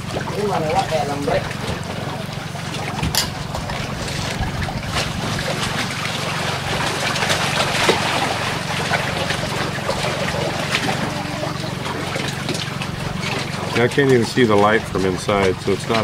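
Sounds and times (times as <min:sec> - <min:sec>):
boat engine humming: 0:00.0 - 0:16.0
water splashing: 0:00.0 - 0:16.0
wind on microphone: 0:03.0 - 0:05.6.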